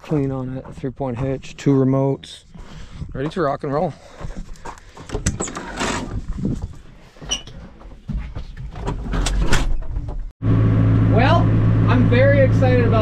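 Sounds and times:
low engine rumble: 10.4s - 13.0s.

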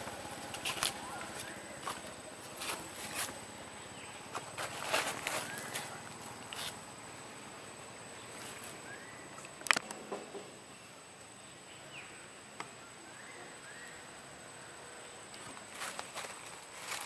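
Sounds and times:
steady high-pitched whine: 0.0s - 17.0s
faint bird chirps: 5.2s - 6.7s, 8.1s - 9.6s, 10.7s - 15.3s.

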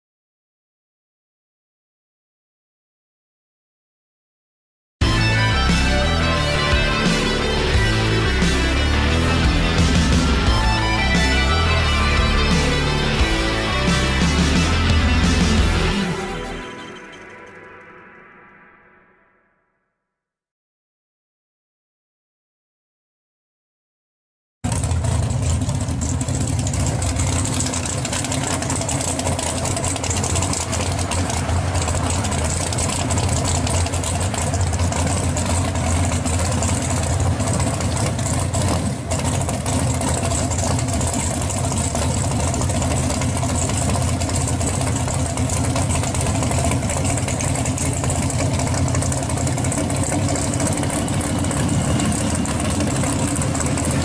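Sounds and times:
car engine idling loud: 5.0s - 16.6s, 24.6s - 54.0s.

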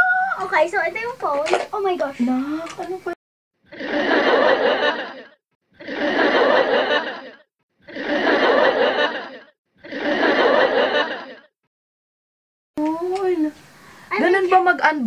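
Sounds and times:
laughter sound effect: 3.7s - 11.5s.

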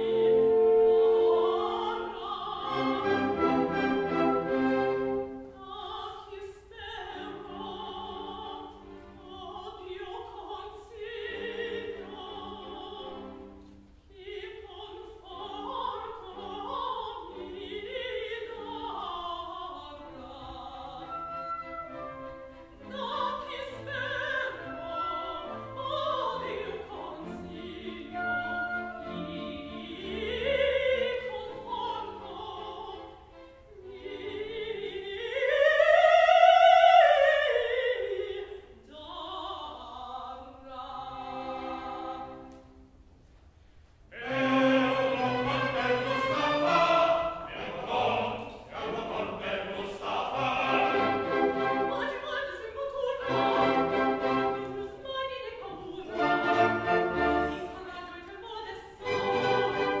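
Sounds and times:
orchestra playing: 0.0s - 5.6s, 21.0s - 25.8s, 26.5s - 33.7s, 44.2s - 52.1s, 53.2s - 54.8s, 56.0s - 57.9s, 59.0s - 60.0s
chorus singing: 0.0s - 13.6s, 14.2s - 39.4s, 44.1s - 60.0s
woman singing opera: 0.0s - 42.7s, 44.1s - 60.0s.

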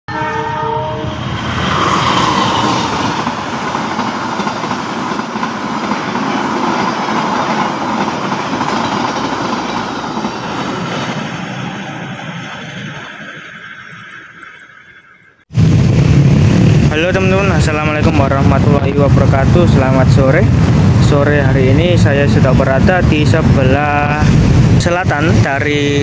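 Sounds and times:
train horn: 0.1s - 1.3s
train passing: 0.1s - 26.0s.

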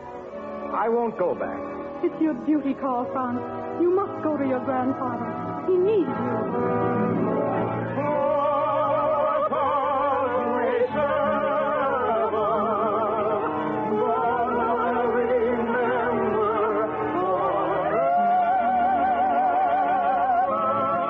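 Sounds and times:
orchestra: 0.0s - 21.0s
operatic singing: 6.2s - 21.0s.

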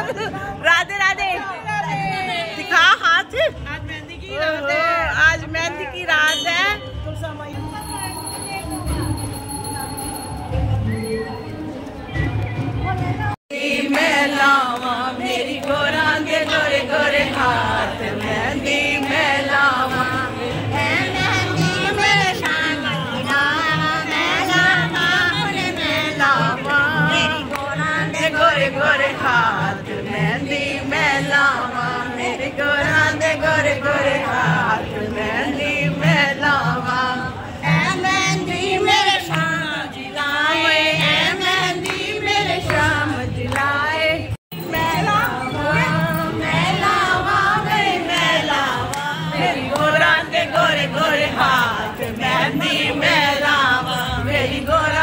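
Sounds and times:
women singing a devotional song: 0.0s - 6.1s, 13.5s - 55.0s.

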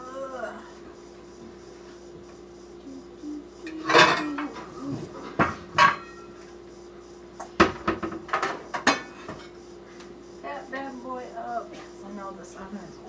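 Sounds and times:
pots and pans clattering: 5.2s - 6.2s.

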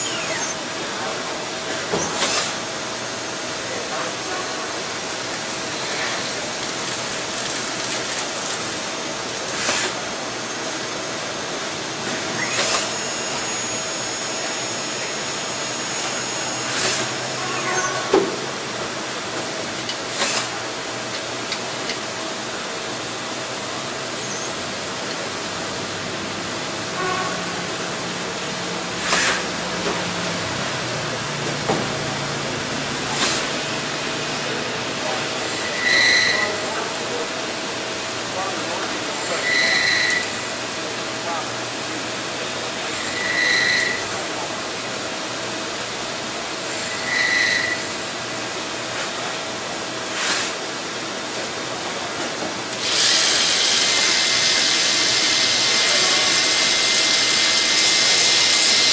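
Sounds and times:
high whine: 0.0s - 1.3s, 10.8s - 18.6s
lathe running with steady hiss: 0.0s - 58.9s.

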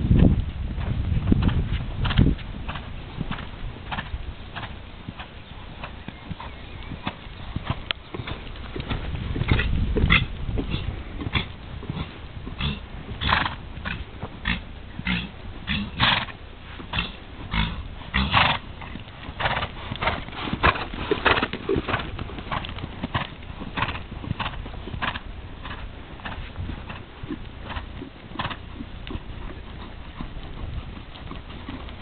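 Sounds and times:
horse hoofbeats on sand: 0.0s - 32.0s
horse breath blowing out: 7.6s - 28.6s.

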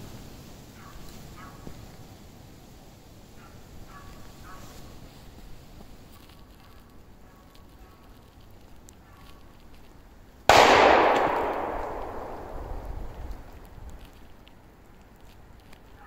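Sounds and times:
shotgun shot echoing: 10.5s - 13.6s.

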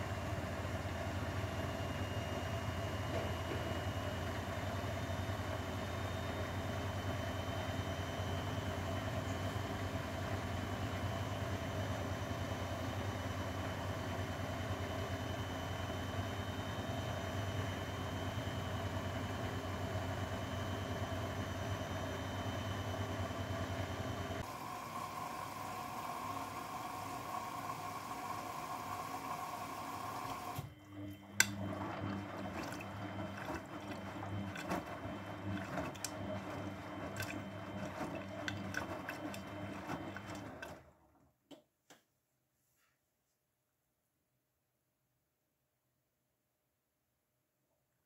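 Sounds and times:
washing machine hum: 0.0s - 41.6s
water running: 31.3s - 40.7s
laundry sloshing in drum: 31.6s - 41.0s.

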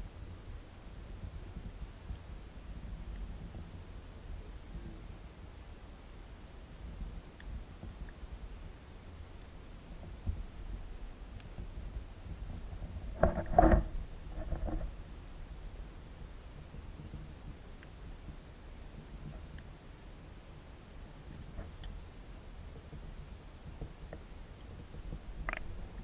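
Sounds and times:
faint high ticking: 1.0s - 26.0s.

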